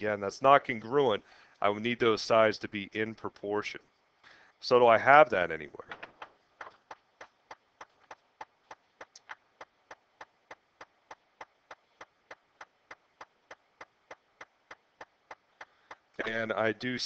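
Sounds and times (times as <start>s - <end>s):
faint repeating clicks: 5.8s - 16.4s.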